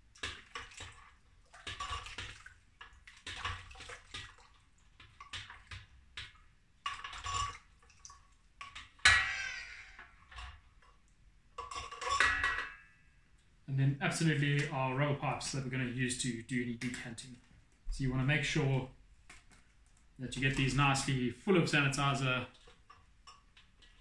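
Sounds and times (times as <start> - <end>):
utensils sloshing in metal bowl: 0.2 - 5.8, 6.8 - 10.9
loud metallic clank: 9.1 - 10.1.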